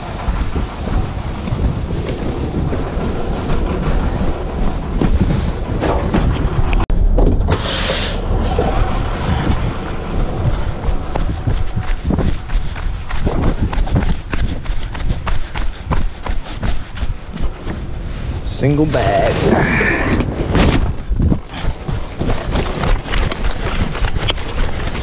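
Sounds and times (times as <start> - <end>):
wind buffeting microphone: 0.0 - 7.6, 8.2 - 25.0
footsteps: 0.0 - 18.4
short sharp hiss: 7.5 - 8.2
footsteps on gravel: 10.0 - 18.0.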